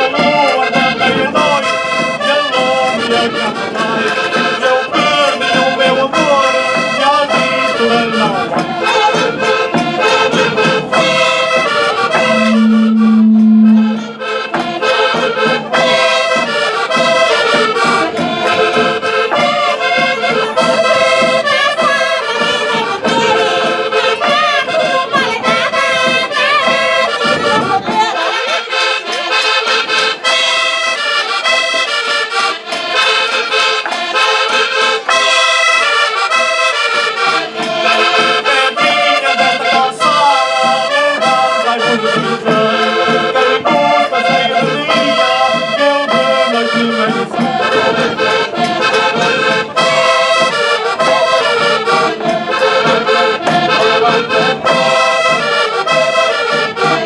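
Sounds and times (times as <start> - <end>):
folk dance music on accordion: 0.0 - 57.0
low accompaniment: 7.9 - 28.0.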